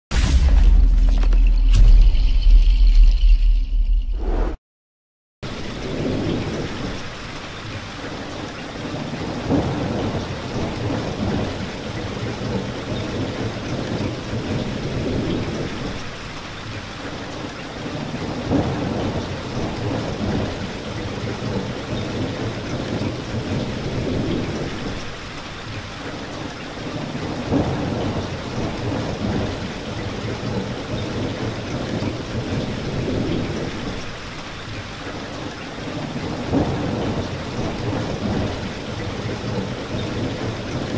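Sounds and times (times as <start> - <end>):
heavy rain on a window: 5.4 - 40.9
thunder rumbling: 5.5 - 7.3, 8.3 - 16.1, 17.9 - 25.4, 26.3 - 40.9.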